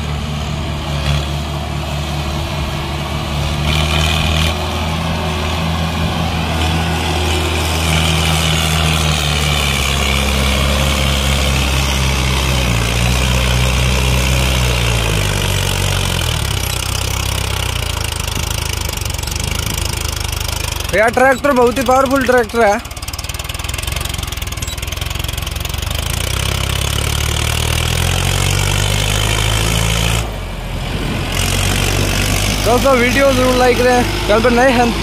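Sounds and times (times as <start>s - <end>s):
tractor diesel engine under load: 0.0s - 35.0s.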